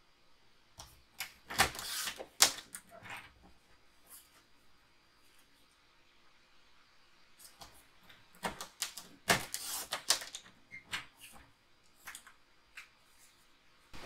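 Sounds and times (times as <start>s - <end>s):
cardstock being cut: 1.5s - 2.6s, 9.2s - 10.4s
paper rustling and scraping: 1.5s - 3.4s, 8.6s - 10.4s.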